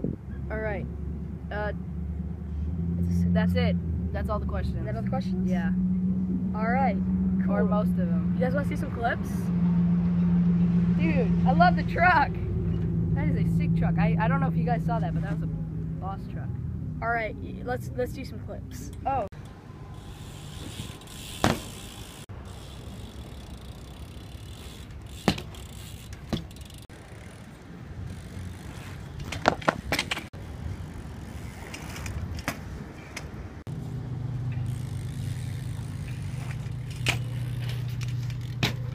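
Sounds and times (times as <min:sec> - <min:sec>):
bike wheels rolling on pavement: 0:17.7 - 0:38.9
bike knocking on ground: 0:21.4 - 0:21.8, 0:25.1 - 0:26.7, 0:36.1 - 0:38.9.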